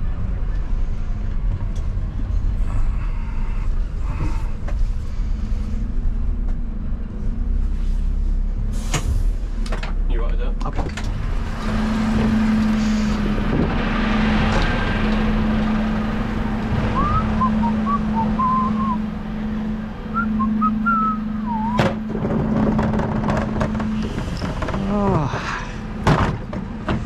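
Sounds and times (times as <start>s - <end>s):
refuse truck humming: 11.0s - 27.0s
whistled notes: 16.9s - 19.0s, 20.1s - 21.8s.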